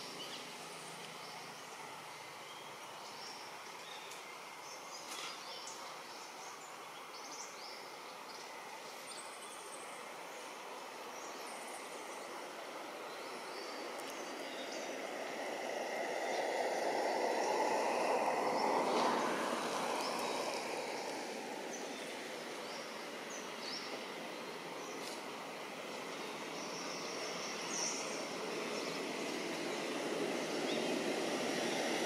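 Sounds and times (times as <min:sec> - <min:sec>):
vehicle passing by: 0:12.7 - 0:22.9, 0:25.7 - 0:32.0.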